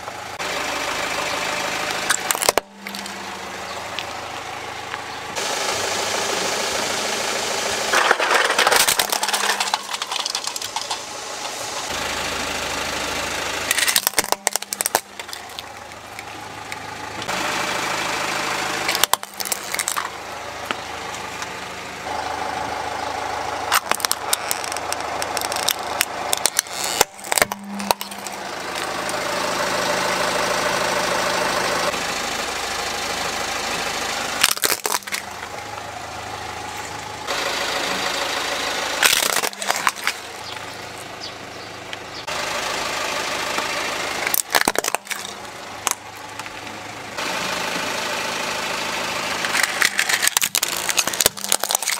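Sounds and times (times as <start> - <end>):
car engine idling: 0.0 - 51.9
plastic toys cracking and snapping: 2.0 - 3.1, 7.9 - 11.9, 13.7 - 16.8, 18.9 - 20.2, 23.7 - 29.2, 34.4 - 35.3, 39.0 - 40.7, 44.2 - 46.7, 49.4 - 51.9.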